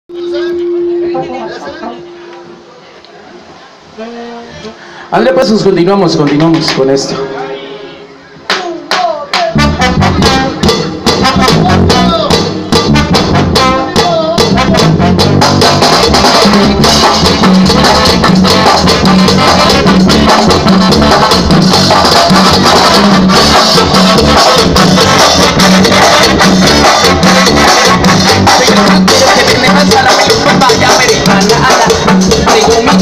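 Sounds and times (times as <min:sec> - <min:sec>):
latin dance band playing: 0:04.0 - 0:33.0
quick percussion hits: 0:06.1 - 0:07.2, 0:08.4 - 0:33.0.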